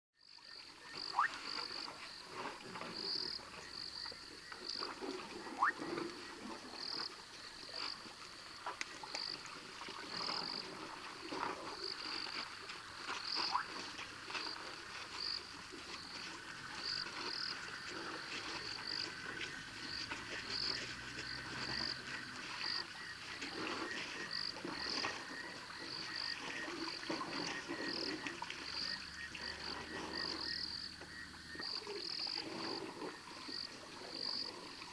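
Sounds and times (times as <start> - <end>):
frogs calling: 0.2 - 2.2, 2.9 - 12.5, 13.1 - 34.8.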